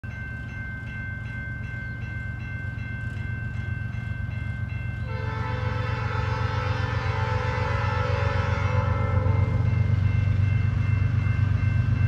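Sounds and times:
crossing bell ringing: 0.0 - 12.0
train horn: 5.0 - 10.1.

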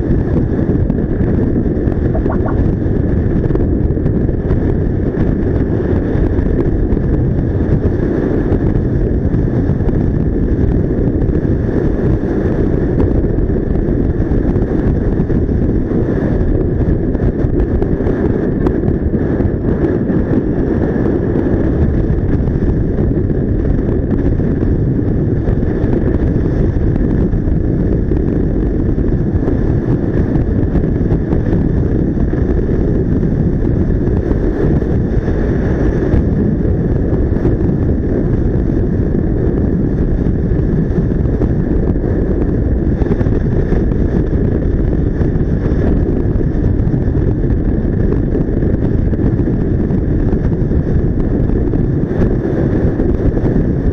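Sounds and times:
scooter engine and road noise: 0.0 - 53.9
wind rushing over microphone: 0.0 - 53.9.

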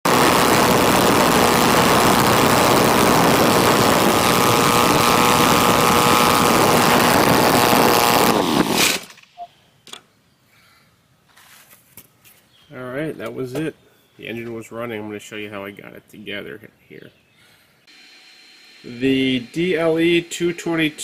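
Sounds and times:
model aircraft engine idling: 0.1 - 8.8, 17.9 - 21.0.

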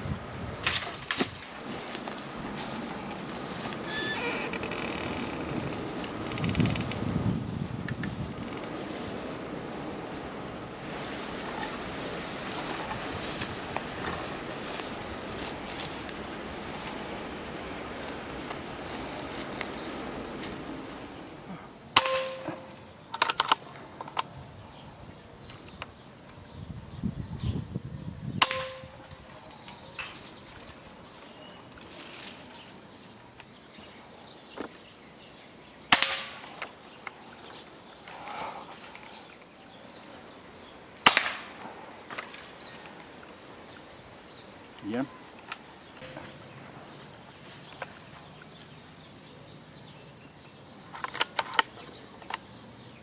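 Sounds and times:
air rifle shots: 22.0 - 23.4, 28.4 - 29.0, 35.9 - 36.5, 41.0 - 41.6.

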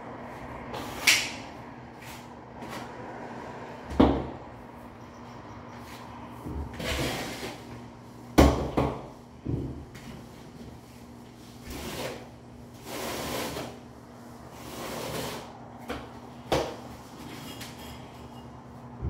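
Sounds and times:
trowel scraping mortar: 6.8 - 7.7, 11.6 - 13.8, 14.6 - 15.5.

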